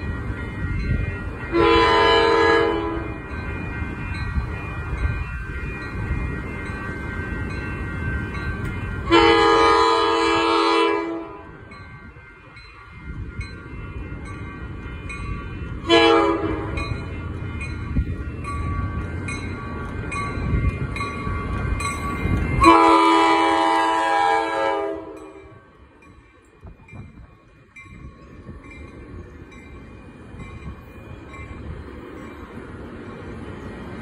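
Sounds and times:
crossing bells dinging: 0:00.0 - 0:34.0
train rumbling: 0:00.0 - 0:34.0
train horn blasts: 0:01.5 - 0:03.2, 0:09.0 - 0:11.6, 0:15.8 - 0:16.9, 0:22.6 - 0:25.6.

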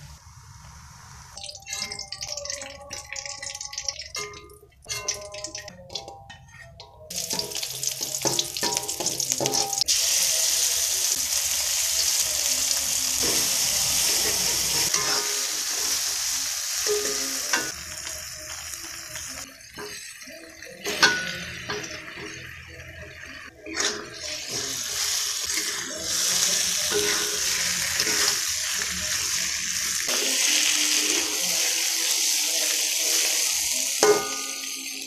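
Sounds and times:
food sizzling in wok: 0:00.0 - 0:03.8, 0:07.1 - 0:35.0
light crackle of frying shallots: 0:07.1 - 0:20.4.

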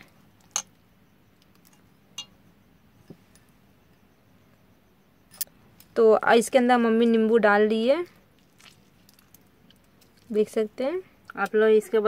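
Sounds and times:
clinks against steel bowl: 0:02.2 - 0:02.4.

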